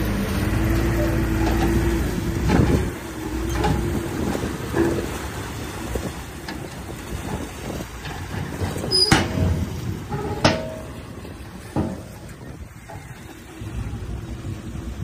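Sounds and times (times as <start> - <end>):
diesel engine running: 0.0 - 15.0
sharp metallic clanks: 8.0 - 13.2.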